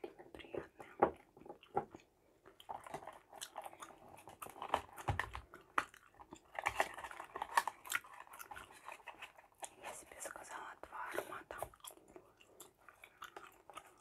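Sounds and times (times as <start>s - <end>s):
gum chewing smacks: 11.6s - 14.0s.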